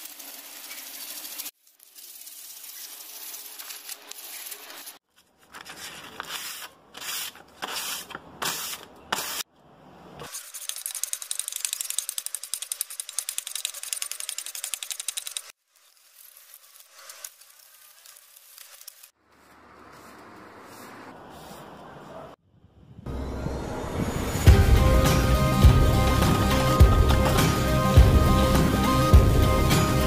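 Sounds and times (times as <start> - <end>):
sandpaper scrubbing metal sheet: 0.0 - 5.0, 5.6 - 9.4, 10.2 - 21.8.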